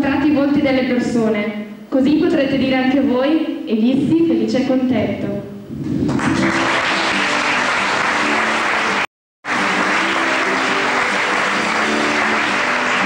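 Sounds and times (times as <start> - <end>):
live band playing: 5.9 - 13.0
audience applauding: 6.0 - 13.0.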